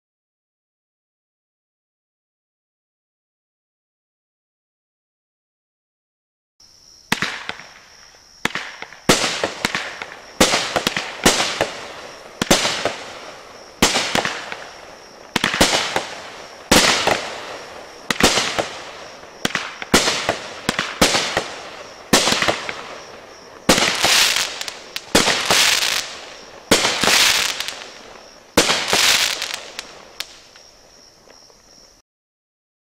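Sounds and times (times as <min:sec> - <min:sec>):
fireworks bangs: 0:07.1 - 0:31.6.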